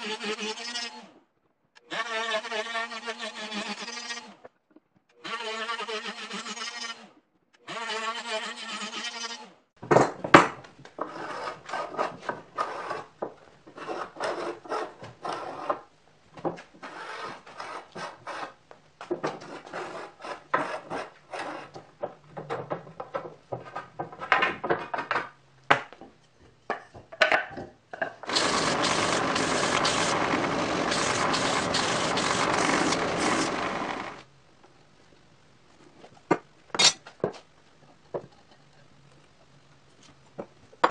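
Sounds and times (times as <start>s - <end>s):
hand tool rasping on wood: 28.3s - 34.2s
belt sander running: 28.3s - 34.3s
router cutting wood: 28.3s - 34.3s.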